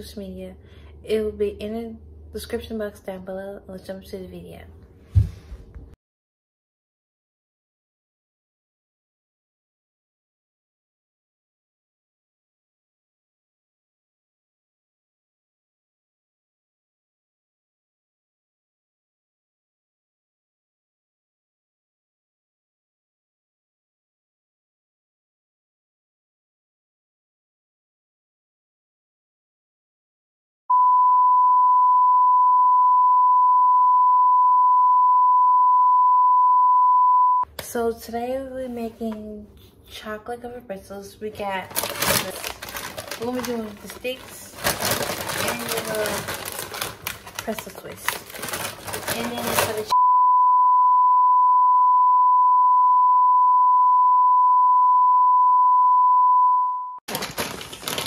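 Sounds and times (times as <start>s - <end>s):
steady test tone beep: 30.7s - 37.5s, 49.9s - 57.0s.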